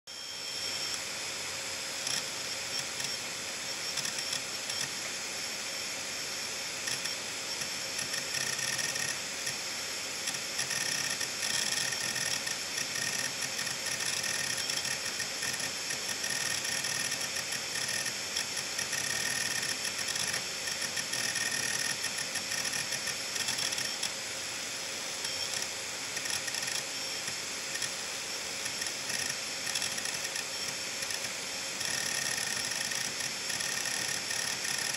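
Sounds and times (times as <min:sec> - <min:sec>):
hard drive platters whining: 0:00.1 - 0:34.9
hard drive head chattering clicks: 0:02.0 - 0:03.2, 0:06.8 - 0:09.6, 0:10.2 - 0:24.2, 0:25.2 - 0:28.0, 0:28.6 - 0:34.9.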